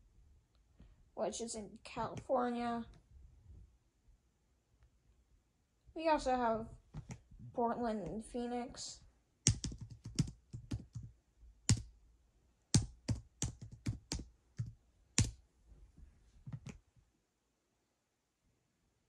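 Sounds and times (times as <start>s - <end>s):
keyboard typing: 6.9s - 7.2s, 9.4s - 11.1s, 11.7s - 11.9s, 12.8s - 15.4s, 16.5s - 16.8s.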